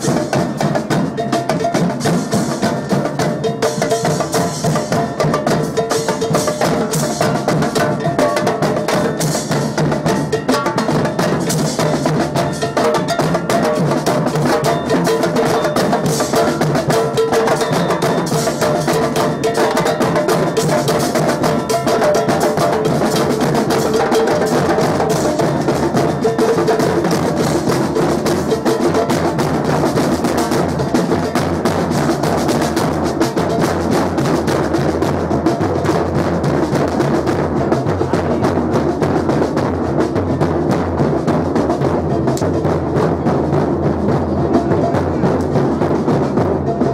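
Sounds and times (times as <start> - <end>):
samba drumming: 0.0 - 46.9
cowbell ringing: 12.0 - 23.0.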